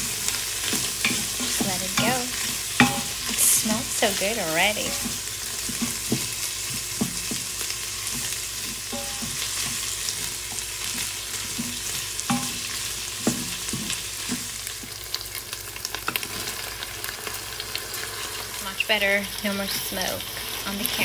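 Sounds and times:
wooden spoon scraping a pot: 0:00.0 - 0:14.5
vegetables sizzling in a pot: 0:00.0 - 0:21.0.

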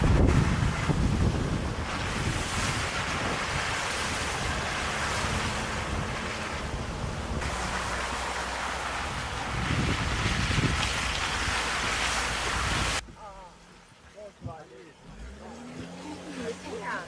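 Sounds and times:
wind on microphone: 0:00.0 - 0:13.2
low engine rumble: 0:00.0 - 0:17.0
tyres through mud and puddles: 0:00.0 - 0:17.0.

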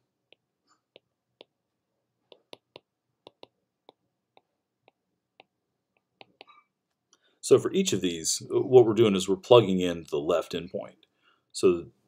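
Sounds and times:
stylus tapping a tablet: 0:00.0 - 0:06.6.

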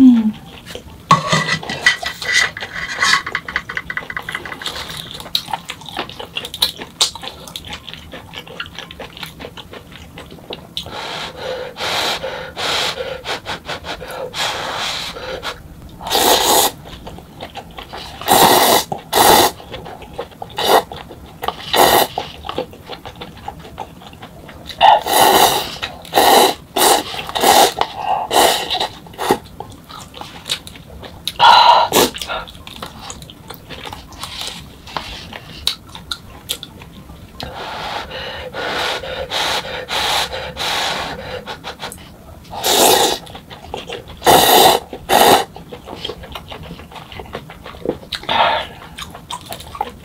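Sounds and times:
quiet chewing: 0:00.3 - 0:01.0, 0:01.7 - 0:11.4, 0:13.6 - 0:40.4, 0:41.0 - 0:50.0
slurping noodles: 0:11.0 - 0:16.8, 0:17.8 - 0:19.6, 0:20.6 - 0:20.9, 0:21.5 - 0:22.4, 0:24.8 - 0:29.4, 0:37.4 - 0:43.4, 0:44.0 - 0:46.7.

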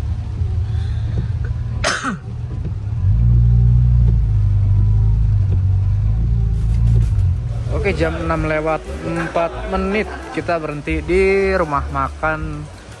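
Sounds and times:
car engine and road rumble: 0:00.0 - 0:13.0
person coughing: 0:01.8 - 0:02.2.

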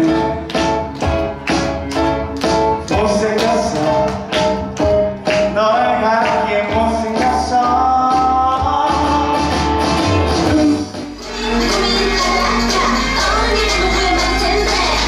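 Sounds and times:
backing track with steady beat: 0:00.0 - 0:15.0
man singing into a microphone: 0:02.8 - 0:04.4, 0:05.4 - 0:10.0.

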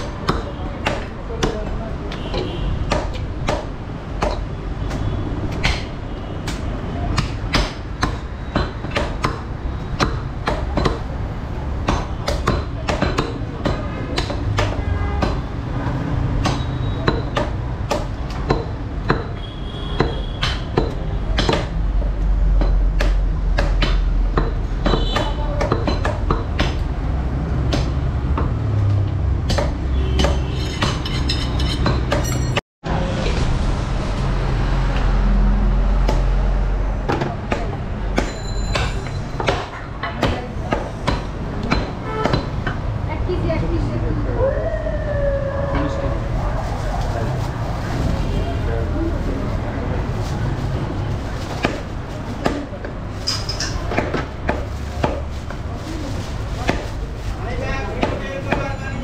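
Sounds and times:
cleaver chopping on wooden block: 0:20.0 - 0:21.8.

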